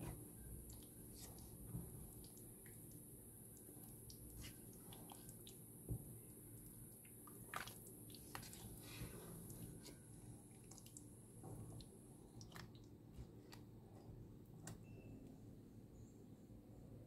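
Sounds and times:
curry popping and squelching: 0:00.0 - 0:14.2
spatula stirring a pot: 0:03.7 - 0:05.6, 0:07.2 - 0:10.9.

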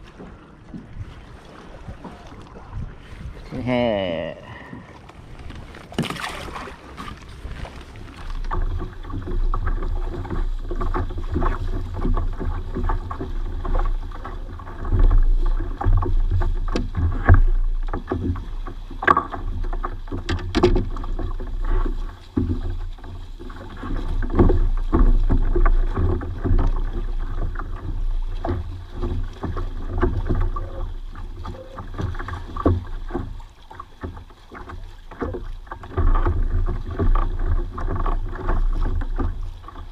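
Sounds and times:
low uneven rumble: 0:00.0 - 0:39.9
water lapping against kayak hull: 0:00.0 - 0:39.9
knocks on hull: 0:04.6 - 0:39.9
fish splashing into water: 0:05.7 - 0:08.4.

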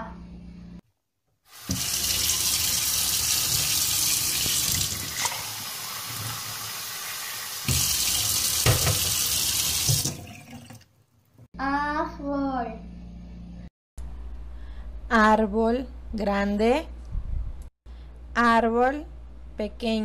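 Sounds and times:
water running into steel sink: 0:01.5 - 0:10.9.

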